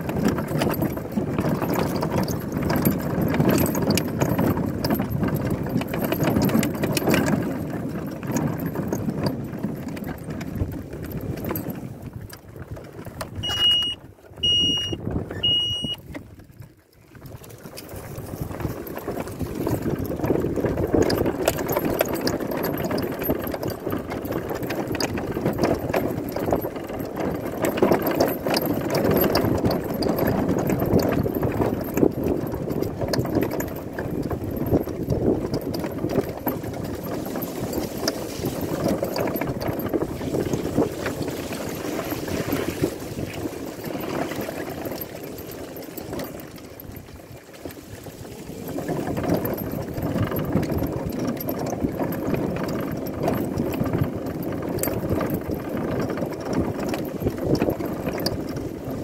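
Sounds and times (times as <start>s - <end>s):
rumble of riding over rough track: 0.0s - 59.0s
short high beeps: 13.4s - 16.0s.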